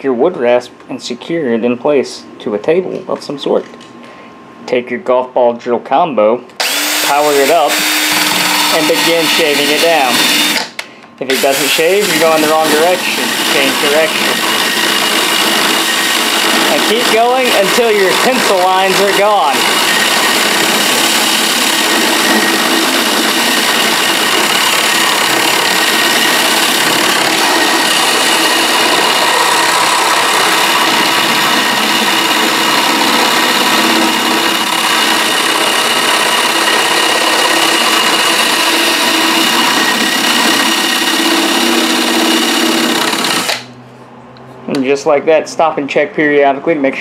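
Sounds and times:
drill motor whine: 0:06.6 - 0:43.7.

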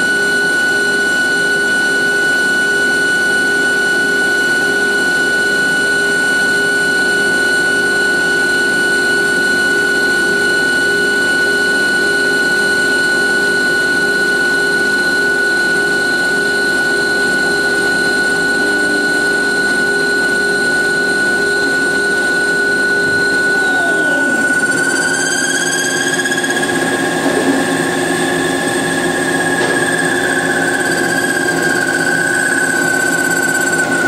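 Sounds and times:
lathe machine whine: 0:00.0 - 0:34.0
grinding noise of cutting brass: 0:17.9 - 0:34.0.

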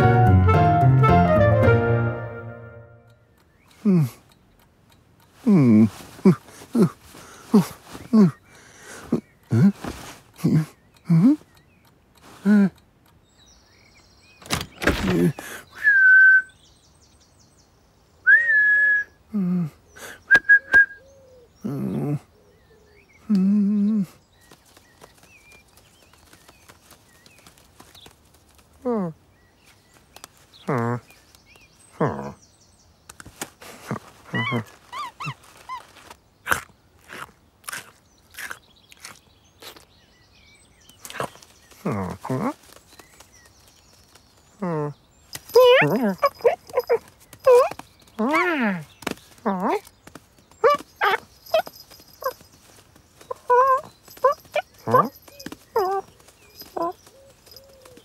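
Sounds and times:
sharp clicks: 0:03.0 - 0:07.0, 0:10.2 - 0:15.4
low voiced sound: 0:05.4 - 0:08.4
man whistling: 0:15.8 - 0:16.6, 0:18.3 - 0:19.2, 0:20.3 - 0:21.0
crisp crunching bites: 0:35.3 - 0:39.9.

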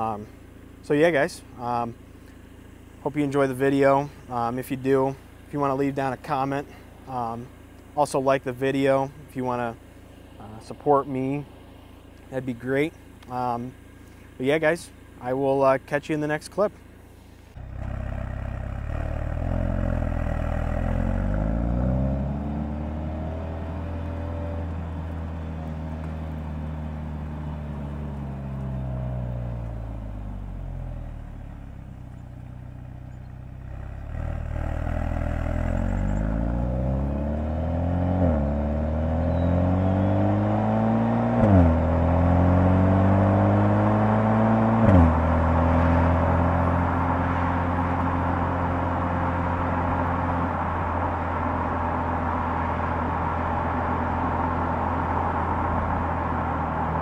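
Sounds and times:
car engine accelerating: 0:16.5 - 0:57.0
exhaust crack: 0:16.8 - 0:57.0.

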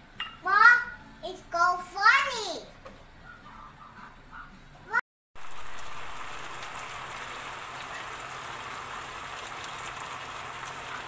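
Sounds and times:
sauce sizzling in frying pan: 0:05.4 - 0:11.0.

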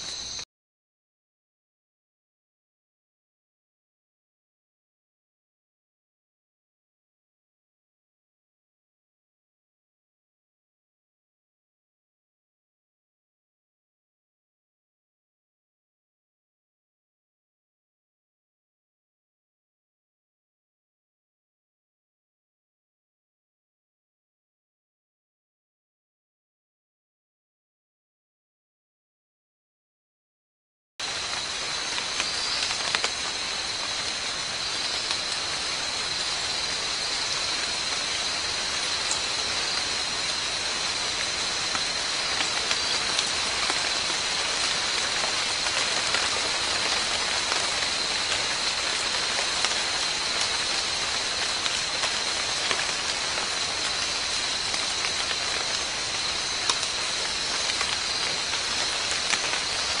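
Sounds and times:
constant high-pitched whine: 0:00.0 - 0:00.4, 0:31.0 - 1:00.0
even hiss: 0:31.0 - 1:00.0.

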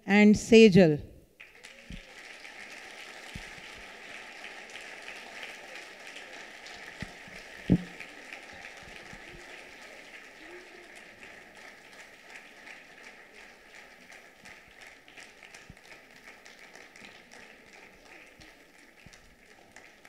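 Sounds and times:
audience applauding: 0:01.4 - 0:20.0
single thump: 0:07.7 - 0:08.0.

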